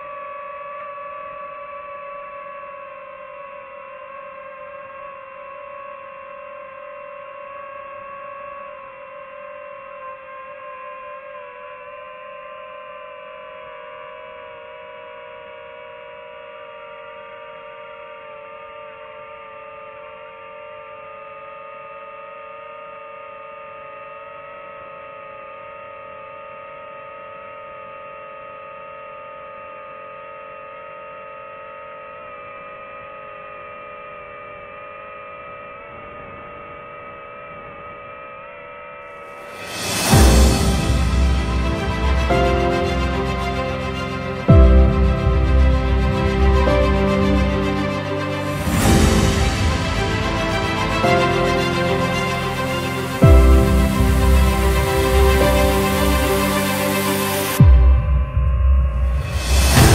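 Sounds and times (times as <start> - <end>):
drone propellers whining: 32.3 - 59.9.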